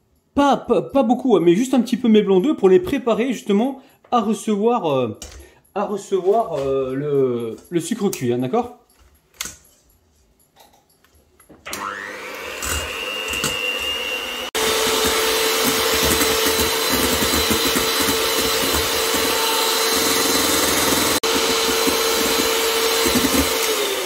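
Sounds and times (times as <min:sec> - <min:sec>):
electric hand mixer whirring: 0:11.7 - 0:24.0
beaters whisking in metal bowl: 0:12.1 - 0:24.0.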